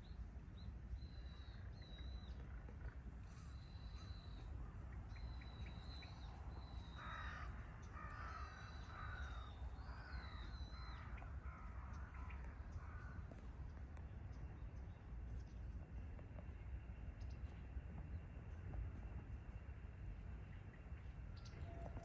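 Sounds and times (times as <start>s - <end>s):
faint low rumble: 0.0s - 22.0s
crows cawing: 6.9s - 13.3s.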